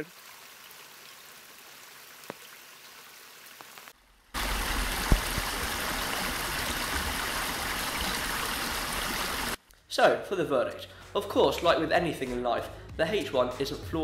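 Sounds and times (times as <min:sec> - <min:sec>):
shallow stream running: 0:00.0 - 0:09.6.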